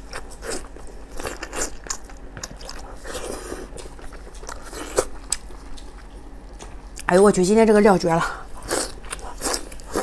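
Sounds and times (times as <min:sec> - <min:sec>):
person chewing crunchy food: 0:00.0 - 0:07.1, 0:08.5 - 0:10.0.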